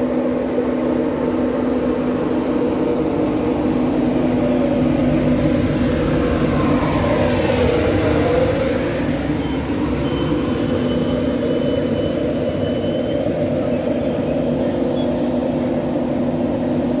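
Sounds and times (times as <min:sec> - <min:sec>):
train rumbling past: 0:00.0 - 0:17.0
wheel squeals: 0:09.2 - 0:15.7.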